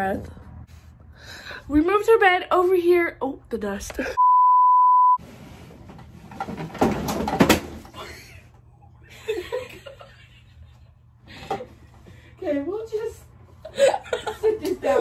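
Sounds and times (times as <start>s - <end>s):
censor bleep tone: 4.2s - 5.2s.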